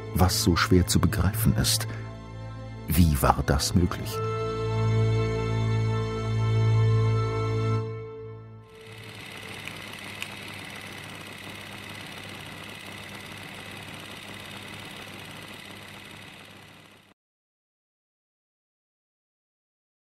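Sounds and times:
machine running with whine: 8.7 - 17.2
small clicks: 8.8 - 17.2.

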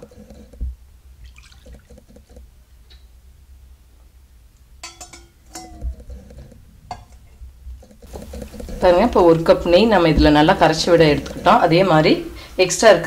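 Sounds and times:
metal spoon knocking glass bowl: 4.8 - 5.9.

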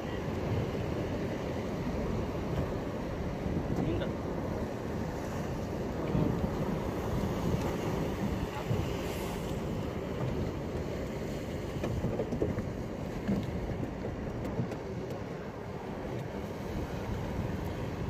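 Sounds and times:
boat engine rumble: 0.0 - 18.0
wind buffeting microphone: 0.0 - 18.0.

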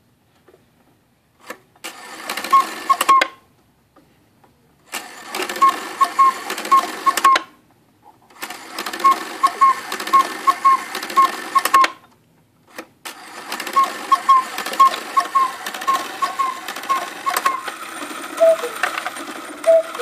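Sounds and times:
clock mechanism whirring and clicking: 1.4 - 3.3, 4.9 - 7.5, 8.3 - 12.0, 12.7 - 20.0
bellows whistle quail call: 13.8 - 17.6, 18.4 - 18.8, 19.7 - 20.0.

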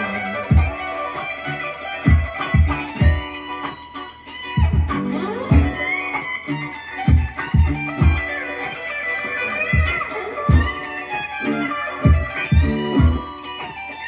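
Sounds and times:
funky electric guitar licks: 0.0 - 14.0
kick drum beat: 0.5 - 0.8, 2.1 - 3.4, 4.6 - 5.9, 7.1 - 8.3, 9.7 - 10.8, 12.0 - 13.4.

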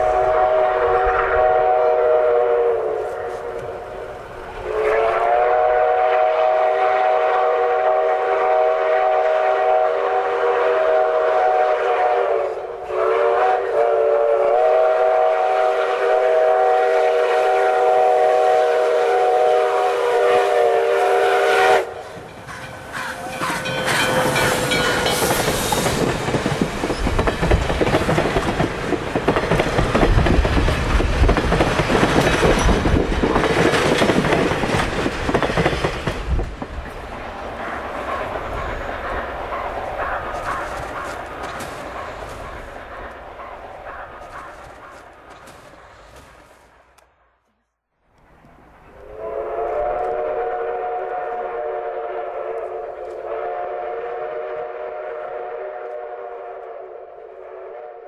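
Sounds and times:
steam locomotive whistle: 0.0 - 4.0, 4.6 - 22.2, 22.9 - 26.1, 49.0 - 58.0
train wheels rumbling on rails: 0.0 - 47.0.

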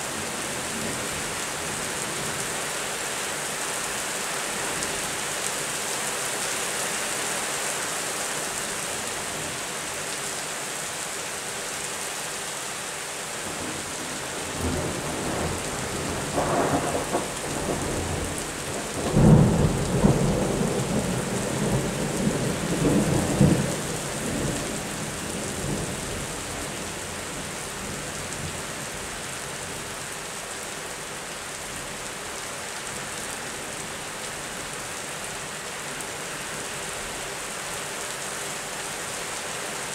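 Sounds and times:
steady rain: 0.0 - 39.9.

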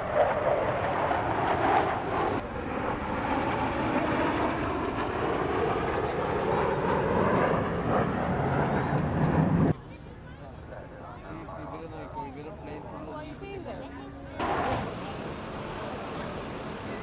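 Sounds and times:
fighter jets flying over: 0.0 - 9.8, 14.2 - 17.0.

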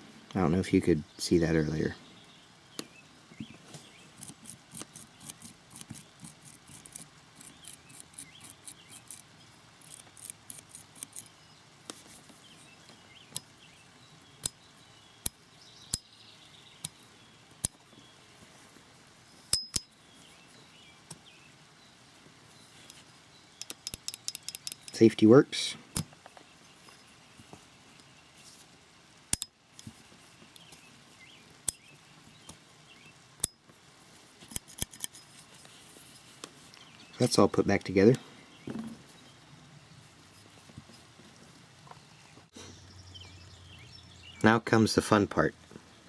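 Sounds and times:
small metallic clicks and rattles: 23.6 - 25.1, 34.4 - 35.4.

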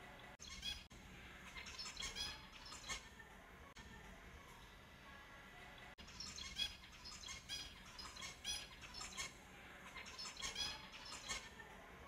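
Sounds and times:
finches chirping: 0.4 - 3.0, 6.0 - 11.6.

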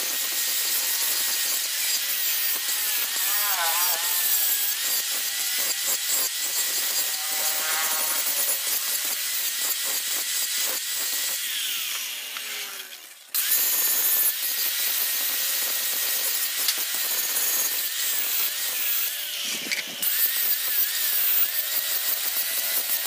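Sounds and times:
angle grinder grinding steel: 0.0 - 23.0.

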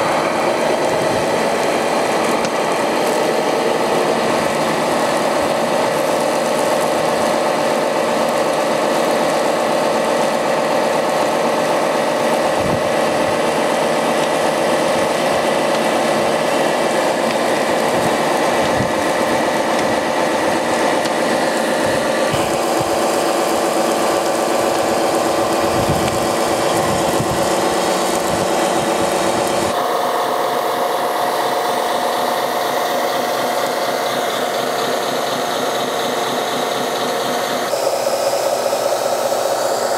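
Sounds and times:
pump mechanical whine: 0.0 - 39.9
spray hissing: 12.1 - 39.9.

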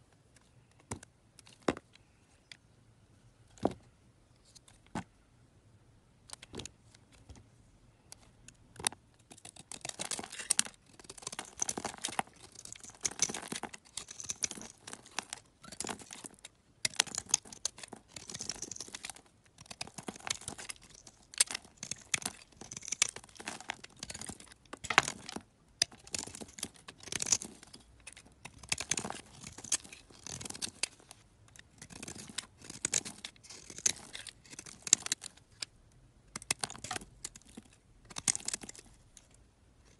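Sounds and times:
knife blade scraping soap: 31.5 - 35.2.

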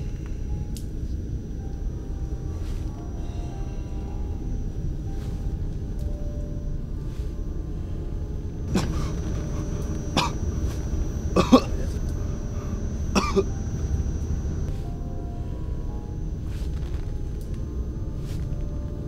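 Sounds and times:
low steady rumble: 0.0 - 19.0
person coughing and gagging: 8.7 - 9.5, 10.1 - 10.4, 11.3 - 12.0, 13.1 - 13.5.

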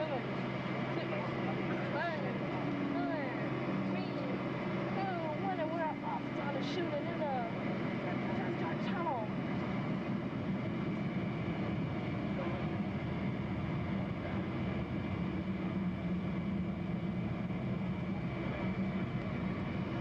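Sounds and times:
airliner cabin engine drone: 0.0 - 20.0.

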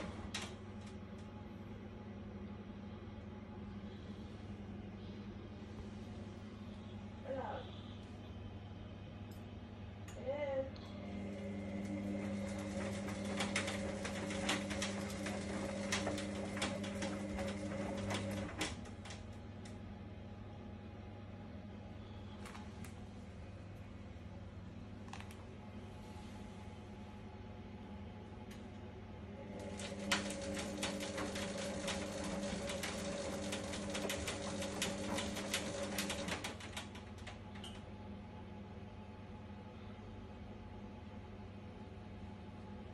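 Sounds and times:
washing machine motor hum: 0.0 - 42.9
rapid irregular clicking and rattling: 12.2 - 19.4, 29.6 - 37.9.

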